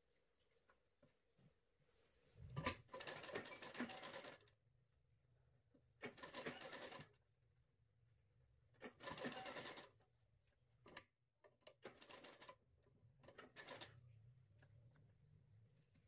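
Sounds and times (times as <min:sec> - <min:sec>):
sewing machine stitching: 0:02.6 - 0:04.5, 0:06.0 - 0:07.2, 0:08.8 - 0:10.0, 0:11.6 - 0:12.6, 0:13.2 - 0:14.0.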